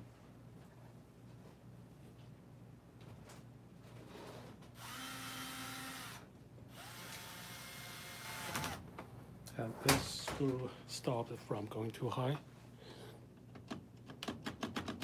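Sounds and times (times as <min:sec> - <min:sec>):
cordless drill motor whine: 0:04.8 - 0:08.8.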